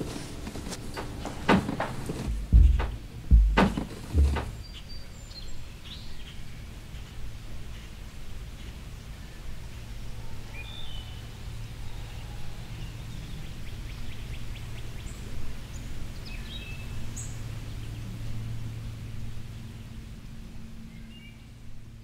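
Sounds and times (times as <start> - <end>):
steady low hum: 0.0 - 5.1.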